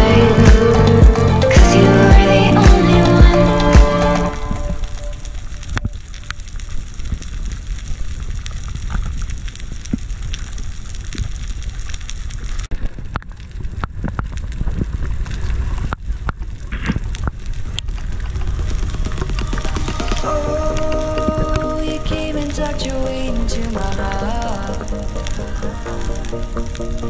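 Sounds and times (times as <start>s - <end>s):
reef clicks and crackles: 4.2s - 27.0s
underwater low rumble: 4.3s - 27.0s.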